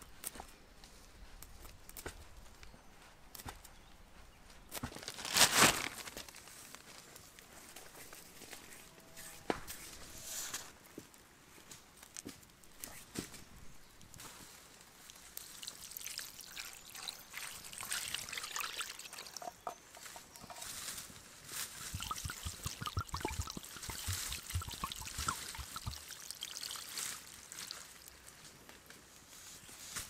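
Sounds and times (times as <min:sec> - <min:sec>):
wine pouring and splashing: 0:15.2 - 0:20.8, 0:21.7 - 0:28.3.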